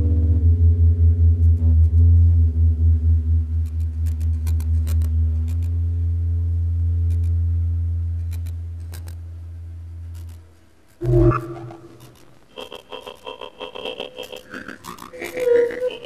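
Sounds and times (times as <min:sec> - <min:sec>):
sudden loud low sound: 0:00.0 - 0:03.7, 0:11.0 - 0:12.2
deep electronic drone: 0:00.0 - 0:16.0
sharp high clicks: 0:03.7 - 0:05.7, 0:07.1 - 0:07.3, 0:08.3 - 0:09.2, 0:10.1 - 0:13.3.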